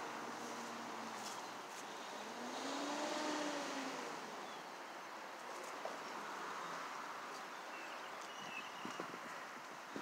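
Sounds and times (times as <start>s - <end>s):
vehicle passing: 2.0s - 4.4s.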